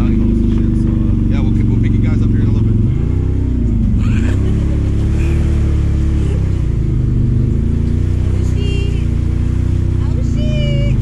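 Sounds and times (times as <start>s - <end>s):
atv engine running: 0.0s - 11.0s.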